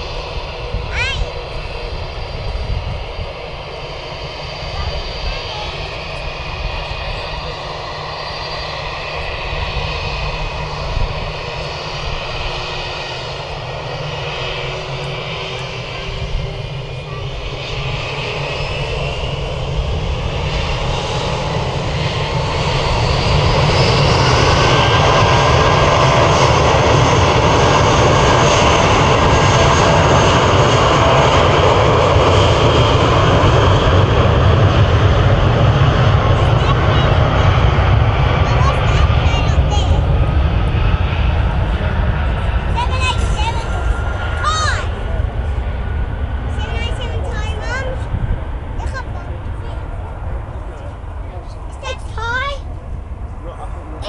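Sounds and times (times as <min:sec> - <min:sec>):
jet engines whining and rumbling: 0:00.0 - 0:54.0.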